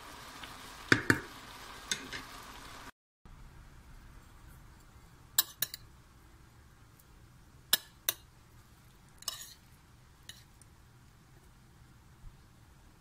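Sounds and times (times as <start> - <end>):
spoon scraping a plate: 9.2 - 10.5.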